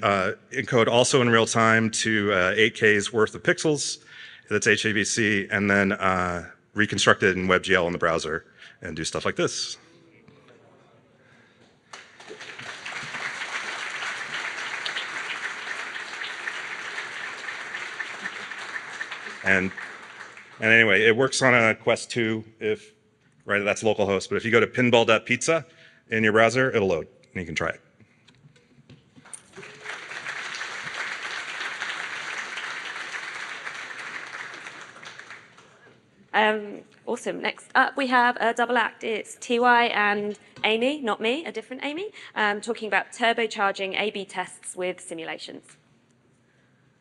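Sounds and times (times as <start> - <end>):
audience applause: 11.9 - 21.6, 29.3 - 35.8.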